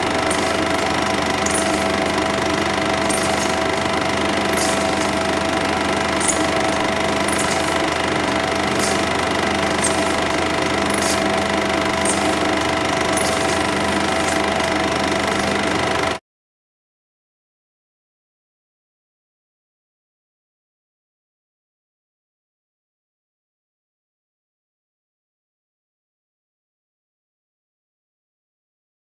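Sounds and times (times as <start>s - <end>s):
film projector whirring: 0.0s - 16.2s.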